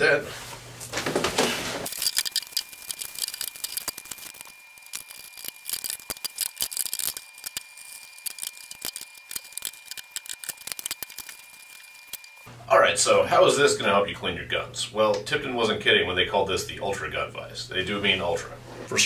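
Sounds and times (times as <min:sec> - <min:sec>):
packaging rustling: 0:01.8 - 0:12.4
parts clicking and rattling on wood: 0:01.9 - 0:12.3.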